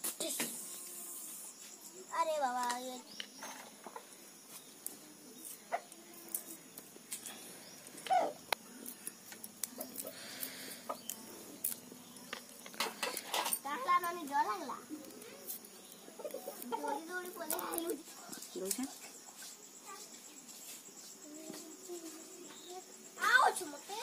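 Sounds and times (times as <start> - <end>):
garlic skins crackling: 4.3 - 18.9.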